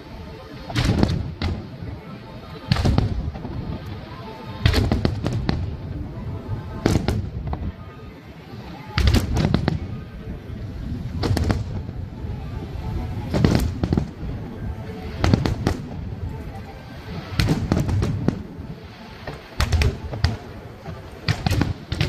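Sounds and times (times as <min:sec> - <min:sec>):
continuous low rumble: 0:00.0 - 0:22.0
firework shells bursting: 0:19.2 - 0:22.0.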